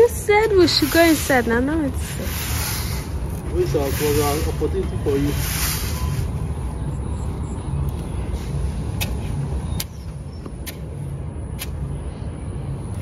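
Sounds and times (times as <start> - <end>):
broom sweeping sandy soil: 0.0 - 7.0.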